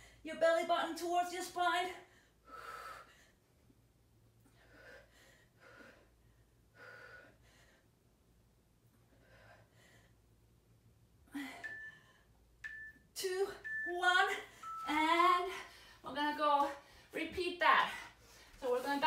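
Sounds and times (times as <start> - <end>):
woman breathing with exertion: 2.0 - 3.6, 4.4 - 8.3, 8.9 - 12.5, 18.0 - 18.6.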